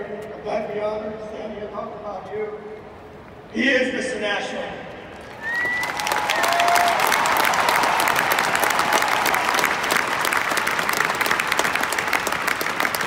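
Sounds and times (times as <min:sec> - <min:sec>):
stadium crowd applauding: 0:05.2 - 0:13.0.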